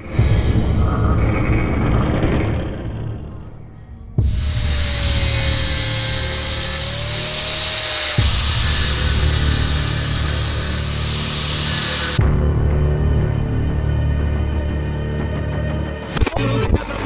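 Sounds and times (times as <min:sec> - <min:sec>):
angle grinder cutting wire: 0:04.3 - 0:12.2.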